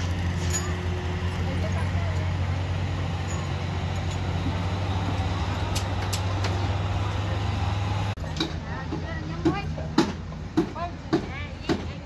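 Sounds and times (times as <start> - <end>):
large engine droning: 0.0 - 9.2.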